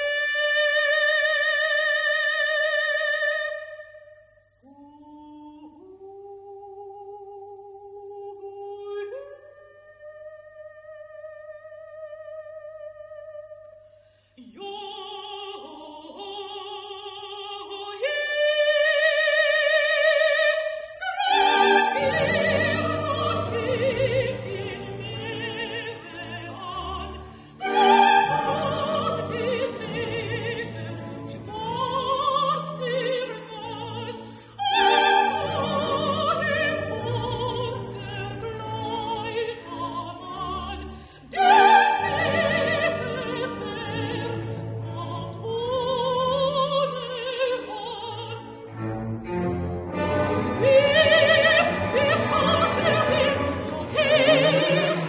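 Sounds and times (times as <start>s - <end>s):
soprano singing opera: 0.0s - 13.8s, 14.4s - 48.9s, 49.9s - 55.0s
full orchestra playing: 21.2s - 55.0s.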